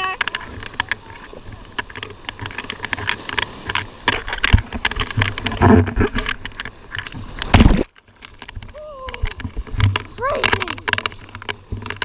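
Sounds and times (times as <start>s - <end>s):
surf washing over camera: 0.0s - 12.0s
loud water splash: 7.4s - 7.9s.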